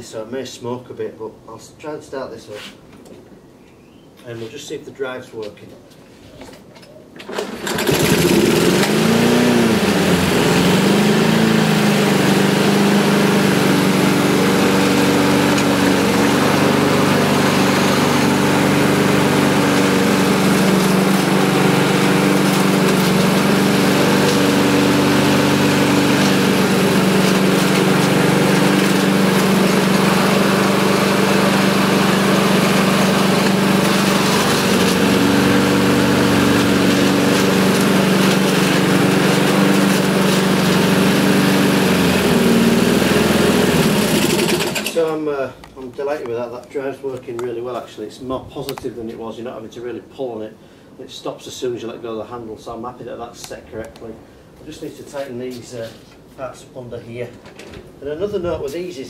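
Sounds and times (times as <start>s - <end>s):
lawn mower engine running: 7.2s - 45.1s.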